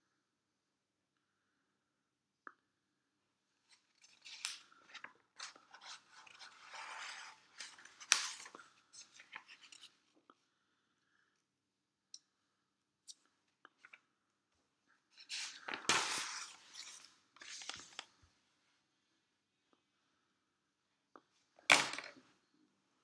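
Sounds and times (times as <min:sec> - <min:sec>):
paper crackling and rustling: 0:15.3 - 0:18.2.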